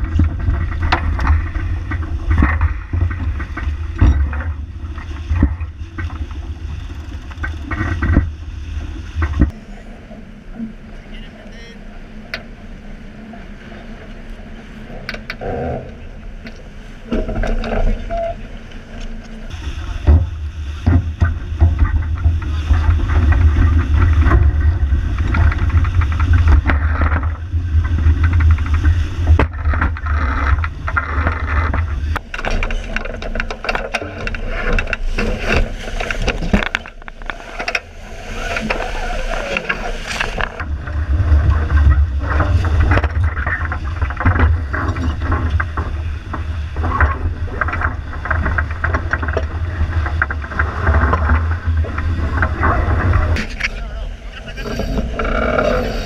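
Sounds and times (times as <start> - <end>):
wind buffeting microphone: 0.0 - 11.0, 17.9 - 56.0
water rushing along hull: 0.0 - 56.0
clicks and rattles: 20.0 - 53.8.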